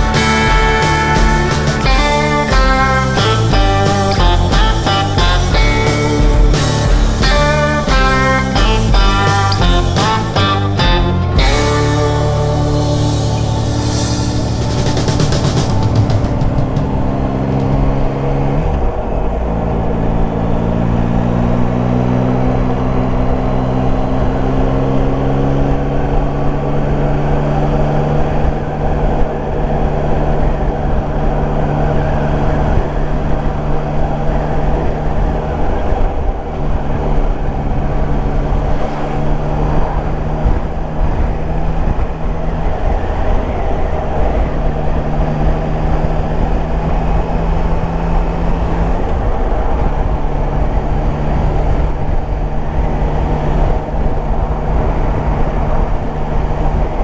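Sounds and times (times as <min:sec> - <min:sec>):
motorcycle engine running: 0:00.0 - 0:57.0
wind rush: 0:00.0 - 0:57.0.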